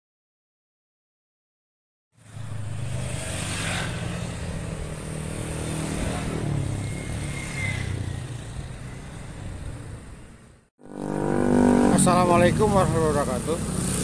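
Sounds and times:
motor engines humming: 0:02.3 - 0:14.0.

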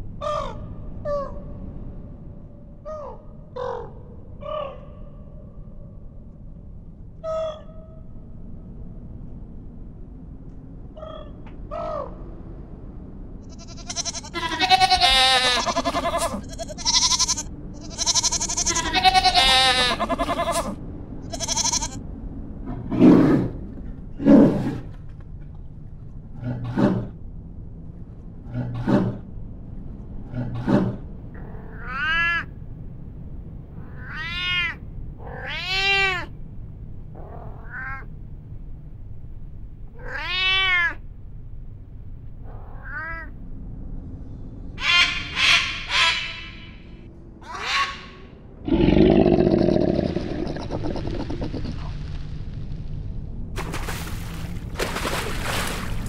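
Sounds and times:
deer bleating: 0:13.5 - 0:22.0
cat meowing: 0:13.6 - 0:20.7, 0:21.3 - 0:22.0, 0:33.9 - 0:36.3, 0:37.6 - 0:38.1, 0:40.0 - 0:41.0, 0:42.8 - 0:43.3
bear grunting: 0:26.4 - 0:27.2, 0:30.3 - 0:31.7, 0:48.6 - 0:51.9.

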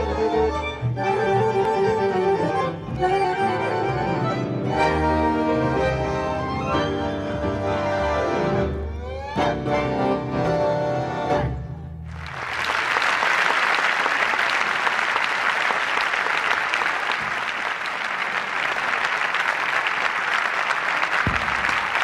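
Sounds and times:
tango ensemble final chord: 0:00.0 - 0:12.1
audience applauding: 0:12.1 - 0:22.0.

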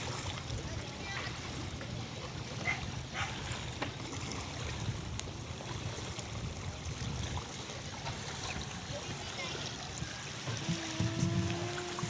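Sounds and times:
waves lapping on pebbly shore: 0:00.0 - 0:12.0.

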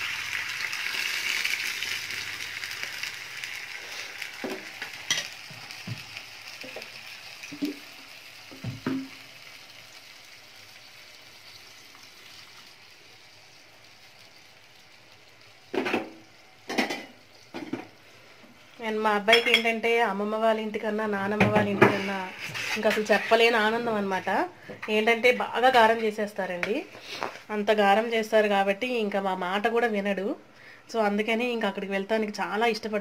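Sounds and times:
juice pouring into pan: 0:00.0 - 0:04.6
onions sizzling in a pan: 0:00.0 - 0:29.8
pots clanking: 0:04.4 - 0:06.9, 0:15.7 - 0:18.0.

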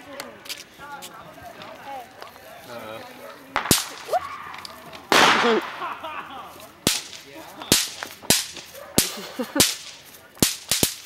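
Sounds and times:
fireworks cracking: 0:03.1 - 0:11.0.

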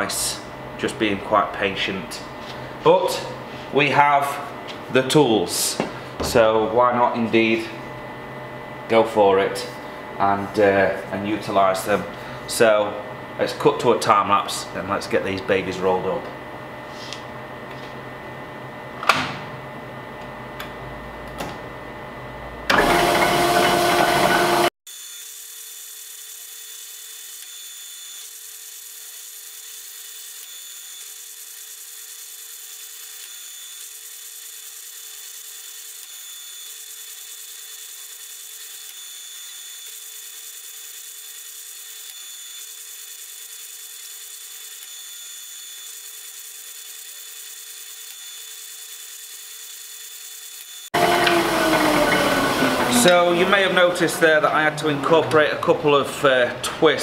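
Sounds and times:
steady machine hum: 0:00.0 - 0:24.7, 0:51.0 - 0:57.0
loud grinding machine noise: 0:21.7 - 0:57.0.

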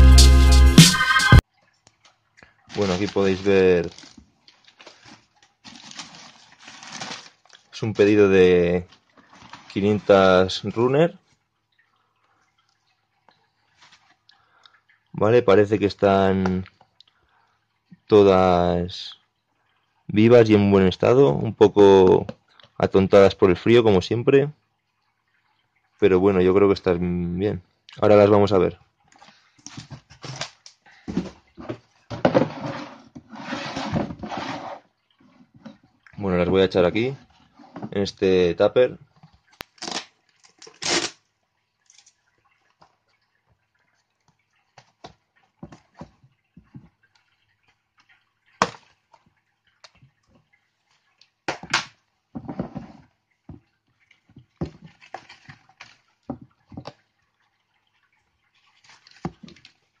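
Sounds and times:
plastic tub and paper rustling: 0:02.6 - 0:10.4, 0:29.2 - 0:35.7, 0:52.4 - 0:53.1.

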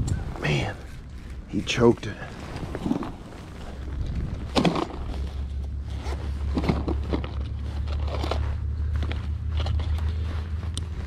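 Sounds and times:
bag scraping and rustling on grass: 0:00.0 - 0:11.0
steady low rumble: 0:00.0 - 0:11.0.

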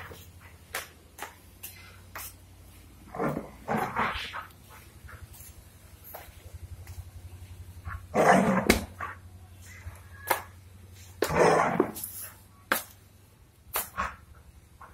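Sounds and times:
dog barking aggressively: 0:07.9 - 0:09.2.

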